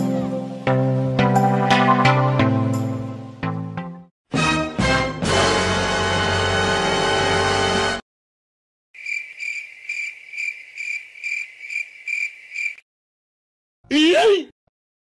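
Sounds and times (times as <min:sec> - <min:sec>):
music: 0:00.0 - 0:08.0
cricket chirping: 0:09.0 - 0:12.8.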